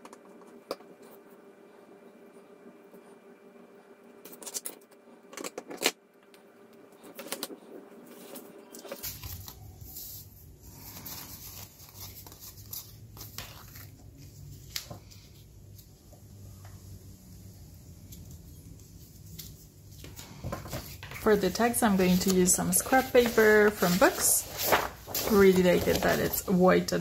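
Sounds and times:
low steady hum: 0.0 - 27.0
paper rustling: 7.0 - 16.0, 18.1 - 27.0.

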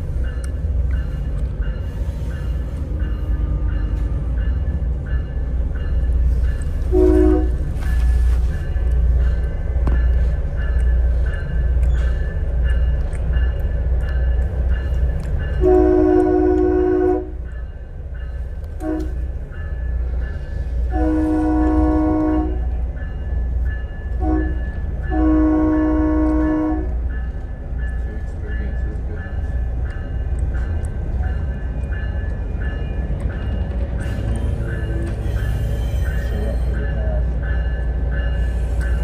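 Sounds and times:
train rumbling: 0.0 - 39.0
train horn blasts: 6.9 - 7.7, 15.6 - 17.4, 18.8 - 19.3, 20.9 - 22.7, 24.2 - 27.0.

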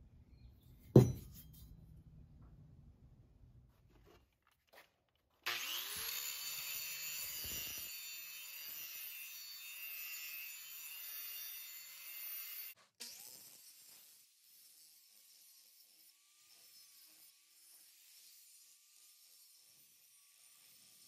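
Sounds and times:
angle grinder motor whining: 5.5 - 9.7
grinder disc grinding steel: 5.5 - 11.1.

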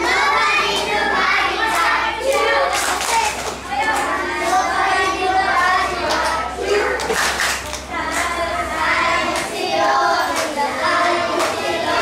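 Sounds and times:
children singing together: 0.0 - 12.0
hand clapping: 1.7 - 4.6, 7.0 - 8.3, 10.3 - 10.6, 11.3 - 11.6.

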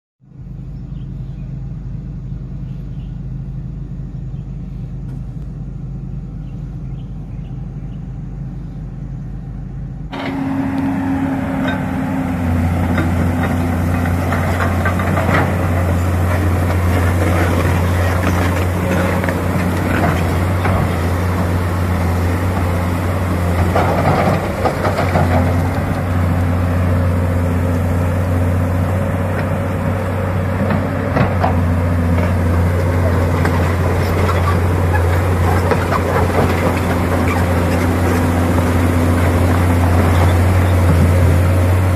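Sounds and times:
excavator diesel engine idling: 0.3 - 41.9
track clanking: 9.6 - 41.9.

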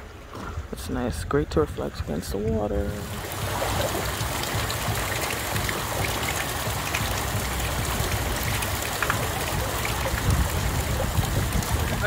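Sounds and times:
water splashing and trickling: 0.0 - 12.0
low rumble: 3.0 - 12.0.

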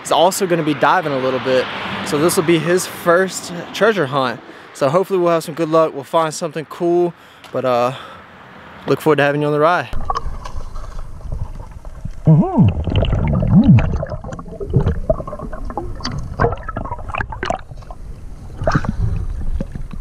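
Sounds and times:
underwater river rumble: 10.0 - 20.0
gurgling warble: 12.2 - 19.1.

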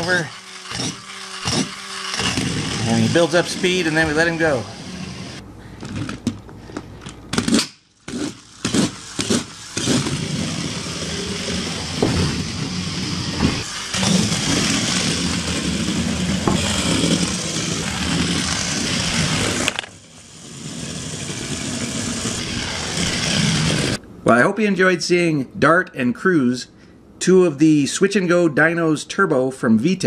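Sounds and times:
toy car engine race sound: 0.0 - 5.4, 8.0 - 24.0
toy cars scraping on tile floor: 0.0 - 6.2, 7.5 - 24.0.

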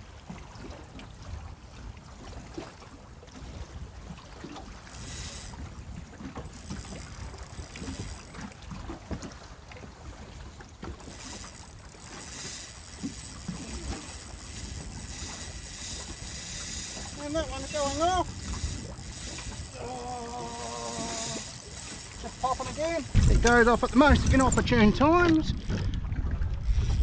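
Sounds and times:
water lapping against boat hull: 0.0 - 27.0
wind buffeting microphone: 10.9 - 27.0.

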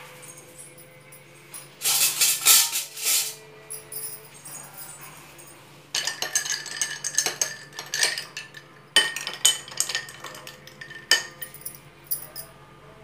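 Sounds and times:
spoon stirring ice in glass: 6.0 - 12.3.

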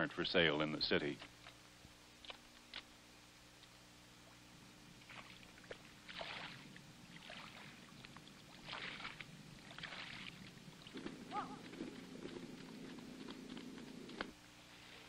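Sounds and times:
water splashing underfoot: 4.2 - 15.0.

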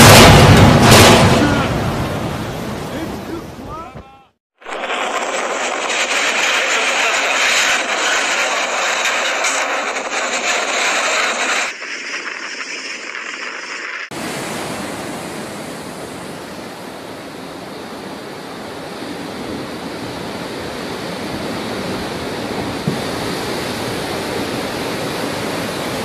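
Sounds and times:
storm wind: 0.0 - 26.0
waves breaking: 13.4 - 17.2.

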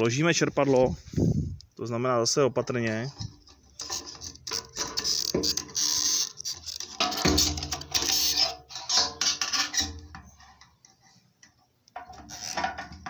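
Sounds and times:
hands rustling and scraping parts: 2.6 - 13.0.

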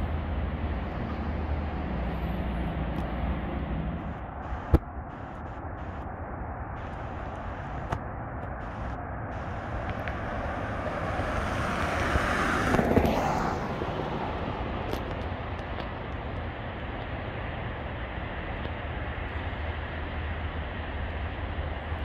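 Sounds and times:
vehicle passing by: 0.0 - 4.7, 9.4 - 15.6
low rumble: 0.0 - 20.8.

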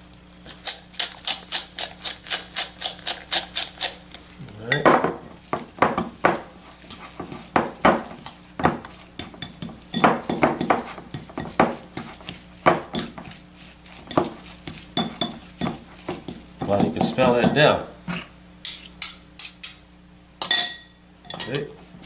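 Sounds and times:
fork scraping glass bowl: 6.7 - 7.5, 18.6 - 19.8.

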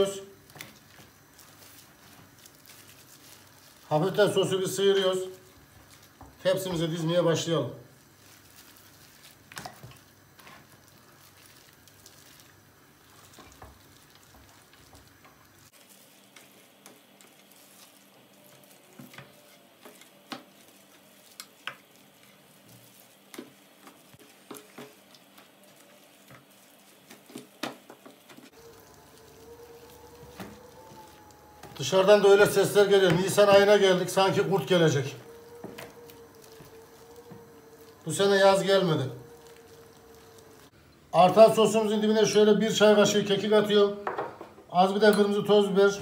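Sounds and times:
wet squelching of chicken: 8.0 - 40.7.

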